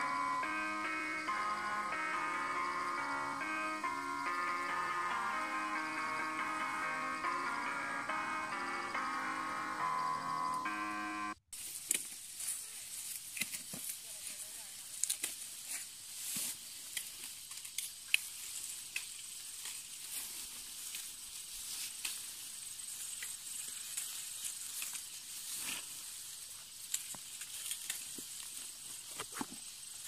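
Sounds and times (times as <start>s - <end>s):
dry rice plants rustling: 11.5s - 30.0s.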